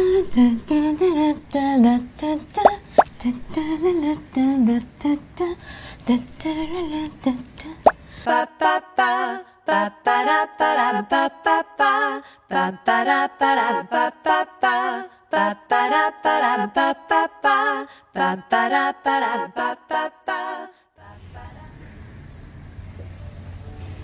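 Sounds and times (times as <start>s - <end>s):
low steady hum: 0.0s - 8.2s, 21.1s - 24.0s.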